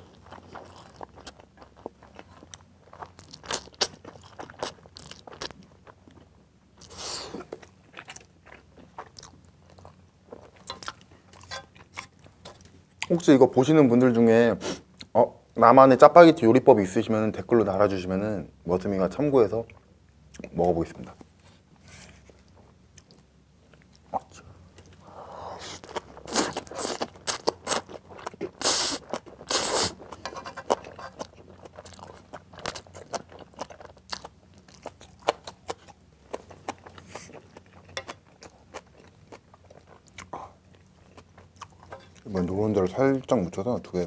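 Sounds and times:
wet chewing with smacking: 25.7s - 42.3s
person slurping noodles: 28.6s - 30.0s.

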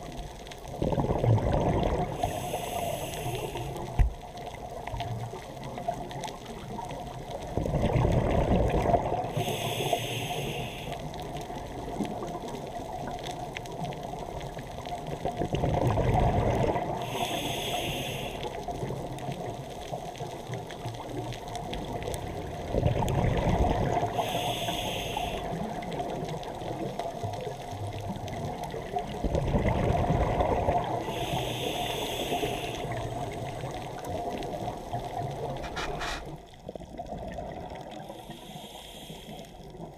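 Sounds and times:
regulator hiss: 2.2s - 4.1s, 9.4s - 11.1s, 17.0s - 18.6s, 24.1s - 25.6s, 31.0s - 33.6s, 38.0s - 39.6s
regulator breath bubbling: 15.9s - 18.6s, 22.8s - 25.8s, 29.6s - 33.6s, 35.6s - 36.4s.

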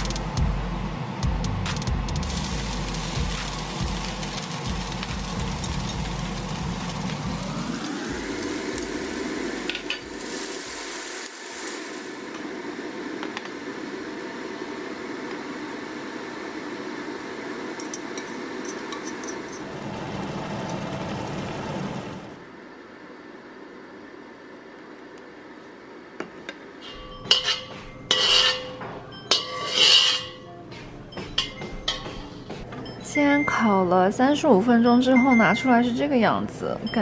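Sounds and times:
whirring hum: 0.0s - 37.0s
food sizzling in a wok: 2.2s - 22.0s, 27.3s - 28.7s, 29.3s - 30.4s
utensil clinking on pan: 27.0s - 30.4s.

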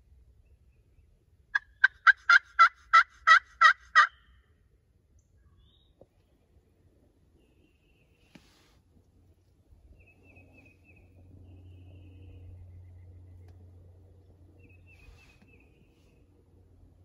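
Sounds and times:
wild turkey yelping: 1.5s - 4.3s.

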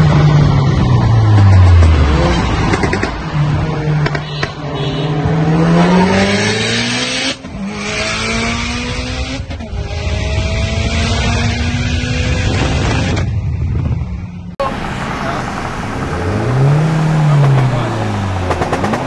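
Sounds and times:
road and wind noise: 0.0s - 19.0s
car engine accelerating: 14.6s - 19.0s.

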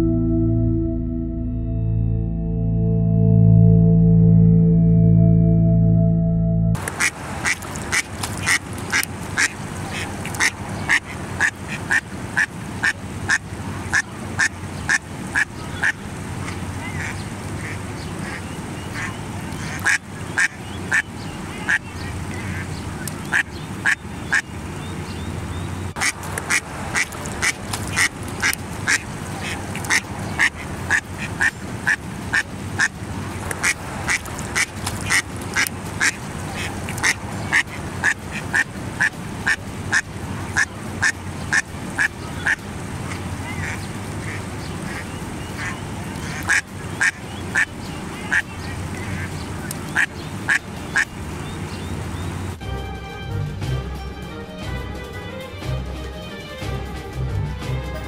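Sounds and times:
duck quacking: 6.9s - 24.5s, 26.0s - 51.1s.

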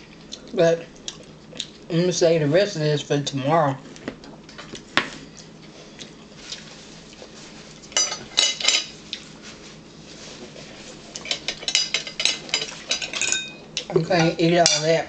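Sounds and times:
fork and dishes clinking: 11.2s - 13.6s.

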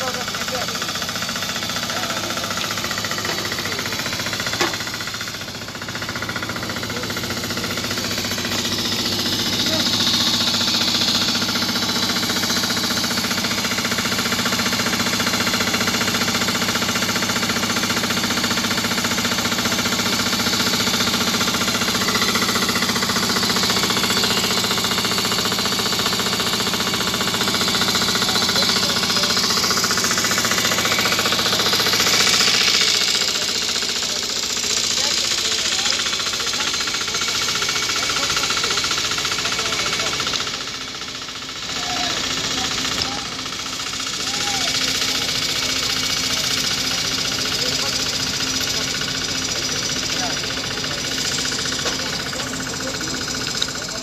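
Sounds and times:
heavy machinery engine running: 0.0s - 54.0s
sharp click: 53.3s - 53.8s.

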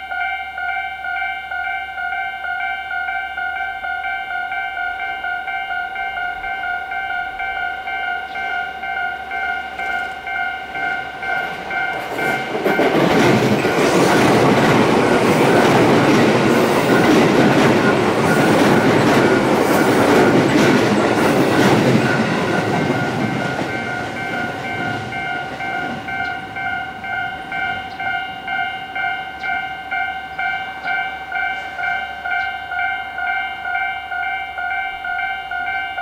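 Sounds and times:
level crossing bell ringing: 0.0s - 21.1s, 22.0s - 36.0s
train wheels clattering over rails: 9.7s - 28.2s.

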